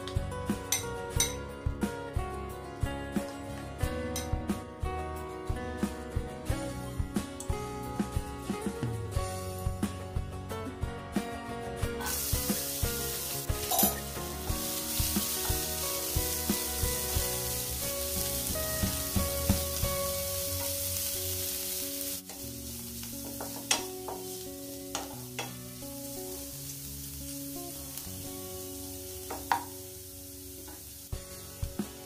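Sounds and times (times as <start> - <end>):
background music: 0.0 - 32.0
cabbage sizzling in a pan: 12.0 - 32.0.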